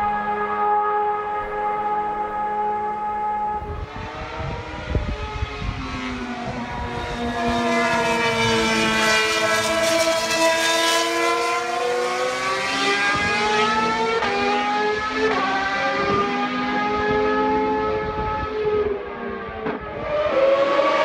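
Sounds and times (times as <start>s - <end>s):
race car engine at high revs: 0.0s - 21.0s.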